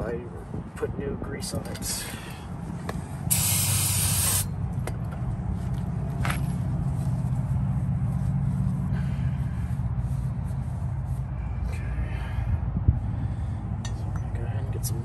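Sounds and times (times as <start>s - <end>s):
steady low hum: 1.9s - 15.0s
aerosol spray hissing: 3.3s - 4.5s.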